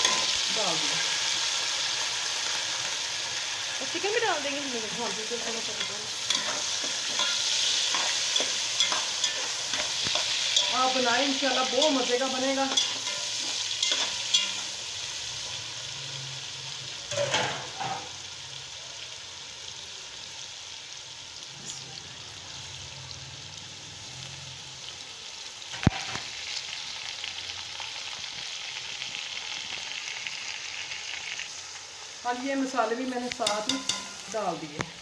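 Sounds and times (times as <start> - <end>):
chicken sizzling in hot oil: 0.0 - 35.0
spoon knocking against pot: 33.4 - 34.1.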